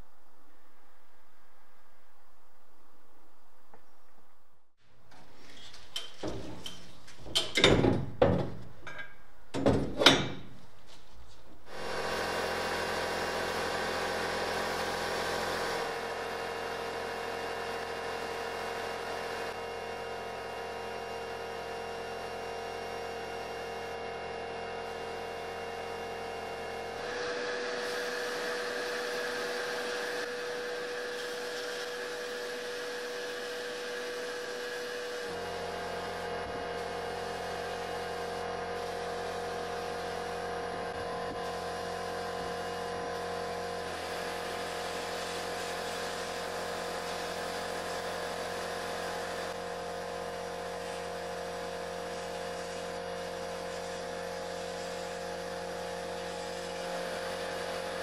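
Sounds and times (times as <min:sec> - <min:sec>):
metallic knocks and clanks: 0:05.1 - 0:10.6
sandblasting air hiss: 0:27.1 - 0:40.4, 0:41.4 - 0:58.0.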